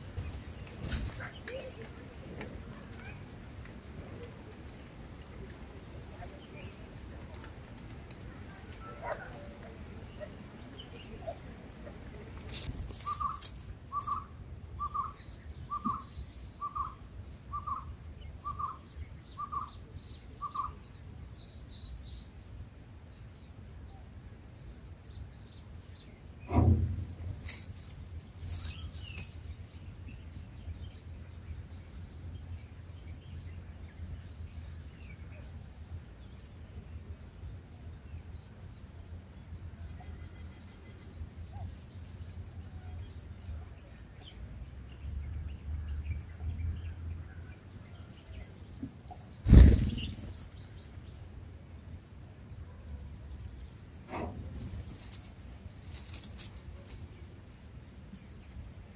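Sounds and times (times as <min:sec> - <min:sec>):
birds chirping: 0:00.0 - 0:58.9
loud thump: 0:26.5 - 0:27.4.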